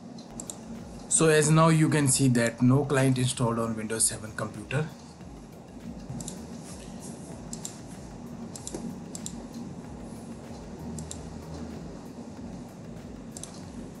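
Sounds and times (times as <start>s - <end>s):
low steady hum: 0.0s - 14.0s
computer keyboard keystrokes: 0.3s - 0.6s, 7.5s - 7.8s, 8.5s - 9.4s.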